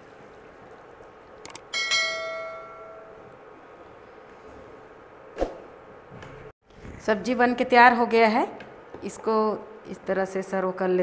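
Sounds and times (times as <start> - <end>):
bright bell chime: 1.8 - 3.2.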